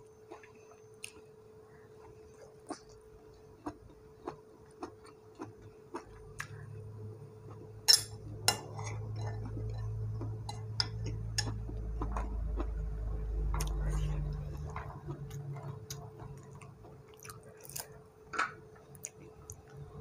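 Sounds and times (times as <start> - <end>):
low steady hum: 0.0 - 20.0
chewing with wet mouth clicks: 0.3 - 1.3, 10.2 - 17.9
metal spoon clinking on a dish: 7.8 - 11.6.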